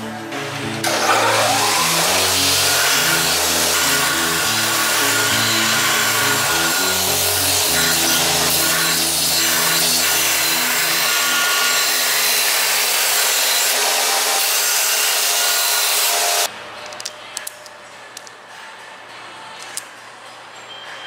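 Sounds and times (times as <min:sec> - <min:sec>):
belt grinder grinding metal: 0:00.8 - 0:16.5.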